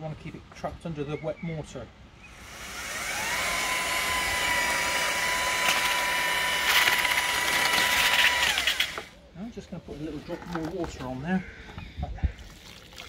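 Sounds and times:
electric paddle mixer whining: 2.3 - 9.1.

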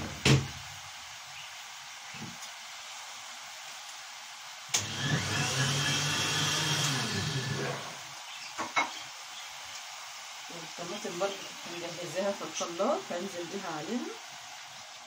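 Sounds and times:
electric blender running: 4.7 - 8.2.

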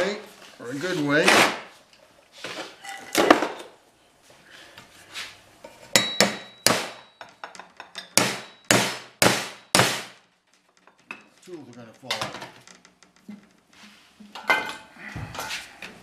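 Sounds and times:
hammer striking metal tubing: 6.0 - 7.3, 8.1 - 10.1.

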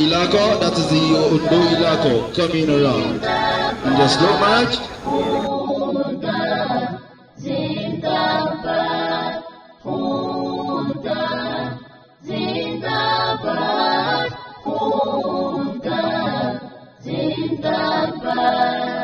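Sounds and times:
many voices chanting in unison: 0.0 - 19.0.

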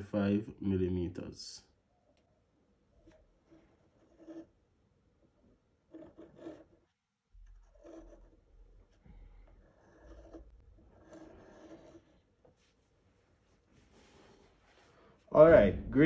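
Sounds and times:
compass lead scratching paper: 3.1 - 4.5, 5.9 - 12.3.

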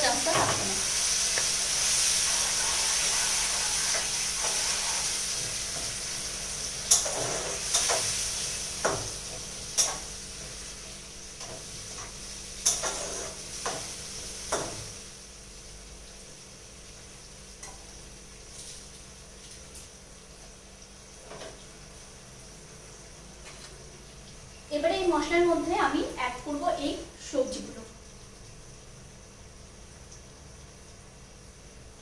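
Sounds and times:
masala sizzling in a pot: 0.0 - 32.0
spatula scraping a pot: 12.6 - 13.4.

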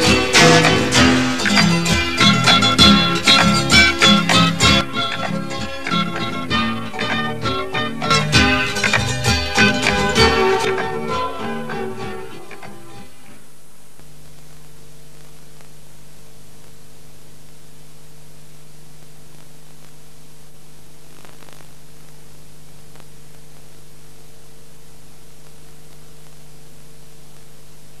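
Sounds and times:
videotape hiss: 0.0 - 28.0
faint crackle: 12.6 - 28.0.

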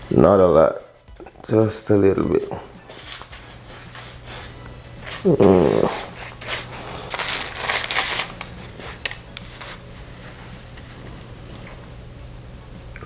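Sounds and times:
pastry brush scratching: 2.9 - 10.7
person humming: 5.2 - 7.3.

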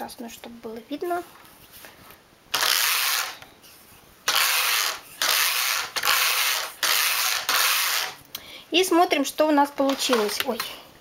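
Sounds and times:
knitting machine carriage sliding: 4.3 - 8.2.

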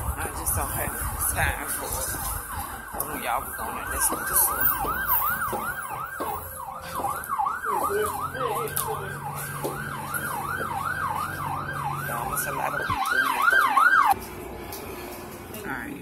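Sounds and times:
siren fast yelp: 2.4 - 14.2.

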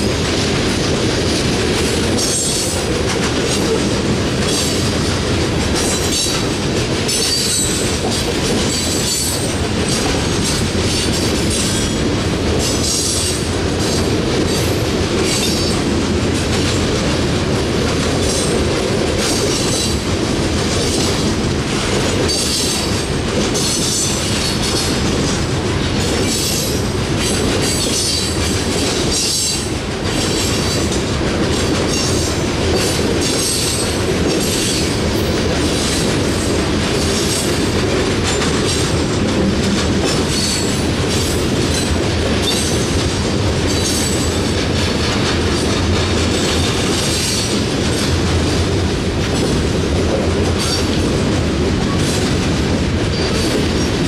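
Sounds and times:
steel wheels rumbling on rail: 0.0 - 54.0
train wheels squealing: 7.1 - 7.8, 8.7 - 9.6, 26.2 - 28.5, 29.1 - 30.8, 40.3 - 40.8.

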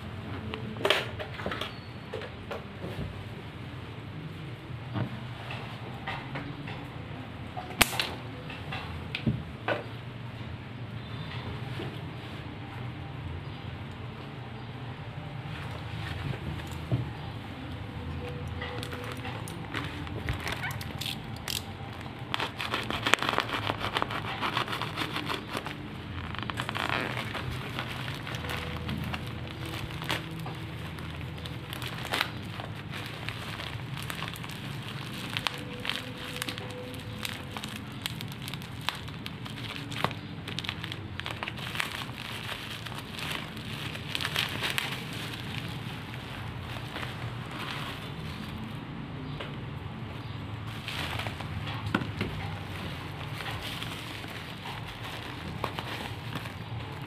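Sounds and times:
plastic bag crinkling: 16.6 - 48.8, 50.6 - 57.0.

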